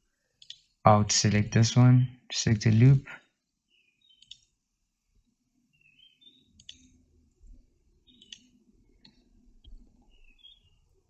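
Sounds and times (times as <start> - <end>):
faint computer mouse clicks: 0.4 - 0.7, 4.2 - 4.5, 6.6 - 7.0, 8.1 - 9.8.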